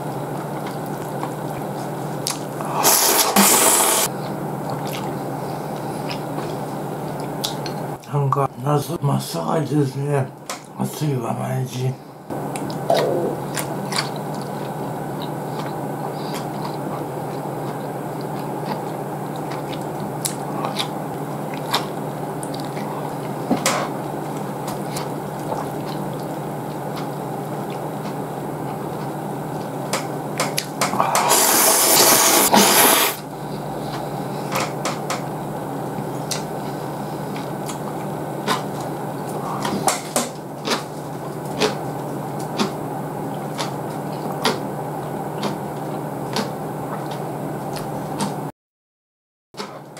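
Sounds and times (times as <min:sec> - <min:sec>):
person chewing: 0:00.0 - 0:07.9, 0:12.5 - 0:34.6, 0:35.9 - 0:48.4
steady low hum: 0:00.0 - 0:48.5
loud slurp of noodles: 0:02.6 - 0:04.1, 0:31.0 - 0:33.2.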